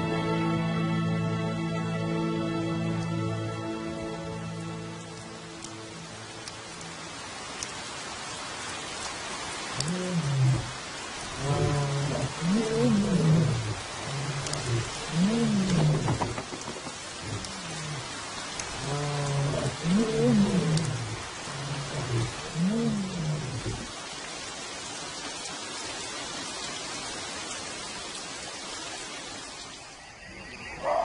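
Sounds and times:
steady rain: 0.0 - 31.0
lions roaring: 9.8 - 23.9.

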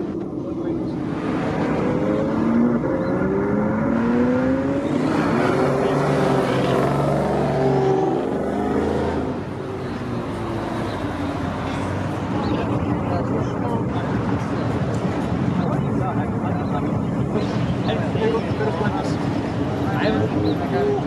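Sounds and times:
car engines accelerating: 0.0 - 21.0.

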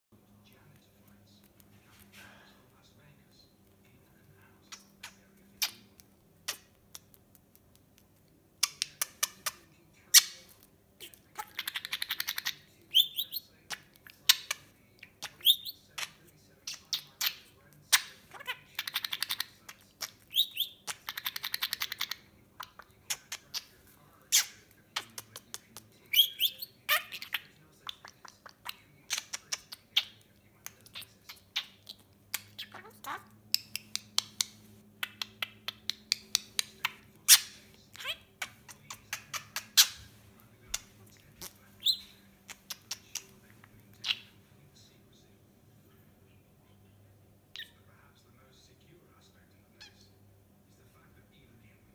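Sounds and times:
budgerigar chirping and chattering: 8.6 - 23.7, 24.3 - 40.1, 41.4 - 43.3
beak clicks: 18.8 - 23.7, 24.3 - 32.8, 33.5 - 40.0.

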